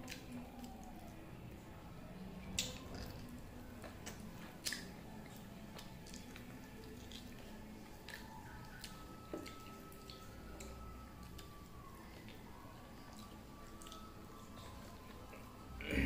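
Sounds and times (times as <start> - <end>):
chewing clicks: 2.5 - 12.4, 13.0 - 14.7
wet mouth smacks: 4.0 - 4.9.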